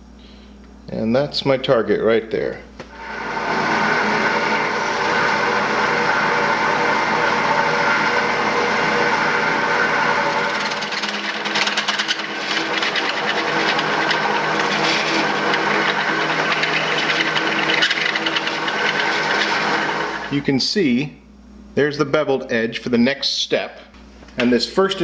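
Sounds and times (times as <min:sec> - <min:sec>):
drill press motor hum: 0:02.8 - 0:20.3.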